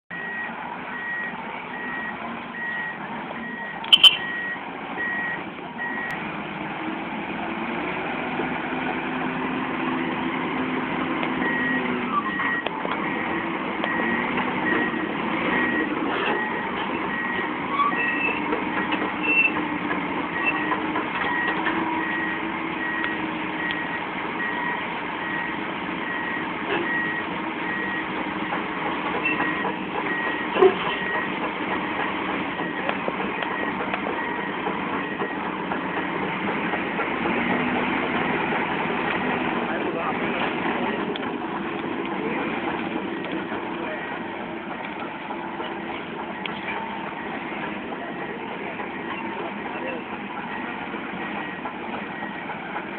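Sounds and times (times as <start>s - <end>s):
warning alarm beeping: 0.1s - 6.2s, 32.6s - 36.1s
heavy diesel engines running: 0.1s - 52.9s.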